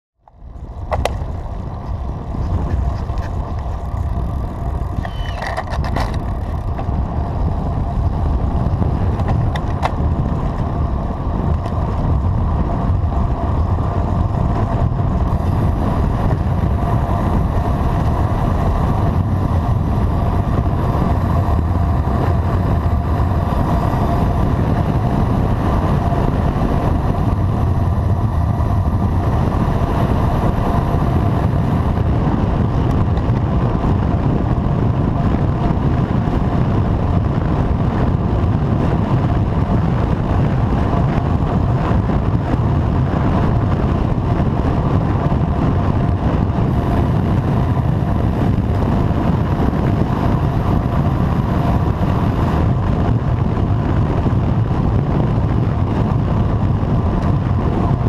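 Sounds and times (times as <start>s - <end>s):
bike tyre noise on asphalt: 0.2s - 58.0s
wind rushing over microphone: 0.2s - 58.0s.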